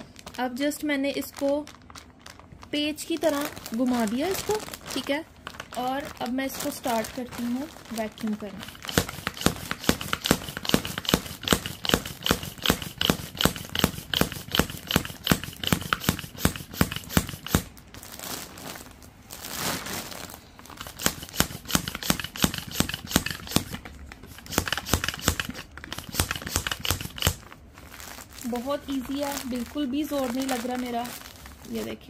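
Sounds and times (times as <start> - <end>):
plastic bag crinkling: 0.0 - 12.1, 17.3 - 32.0
hand pump strokes: 8.6 - 17.6, 20.8 - 27.4.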